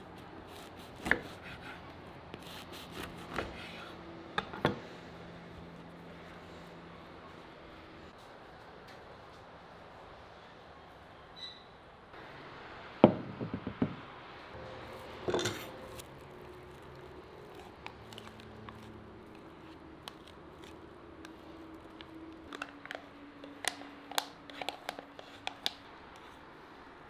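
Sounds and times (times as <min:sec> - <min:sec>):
dish knocking on wooden table: 0:13.0 - 0:14.0.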